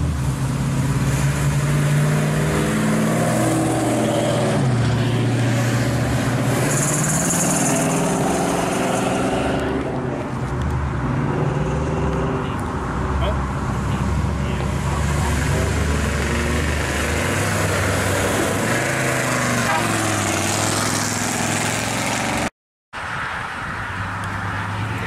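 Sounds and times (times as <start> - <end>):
cars driving past: 0.0 - 25.0.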